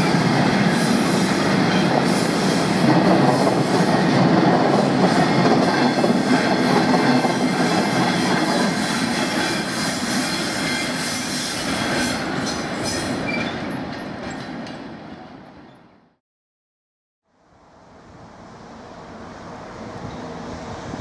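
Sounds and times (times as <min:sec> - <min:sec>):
train wheels rumbling over rails: 0:00.0 - 0:15.3.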